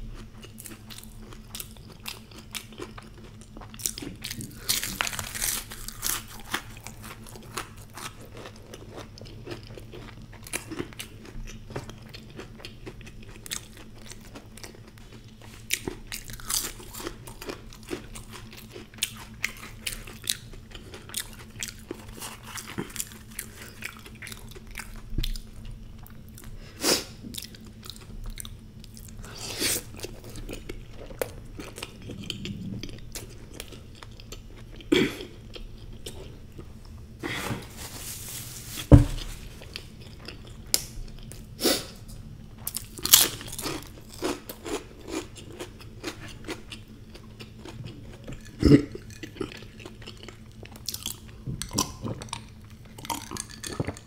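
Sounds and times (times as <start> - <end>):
crunchy food being chewed: 0.0 - 54.0.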